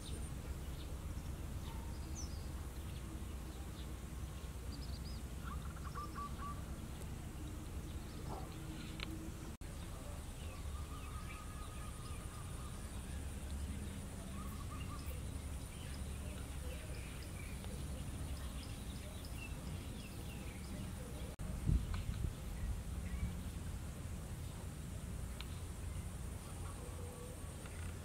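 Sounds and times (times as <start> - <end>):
bird chirps: 0.0 - 23.6
wind on microphone: 18.1 - 24.0.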